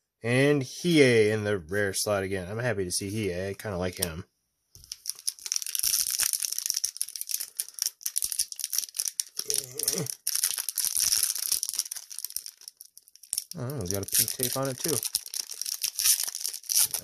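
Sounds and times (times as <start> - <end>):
foil wrapper crinkling and tearing: 4.8 - 17.0.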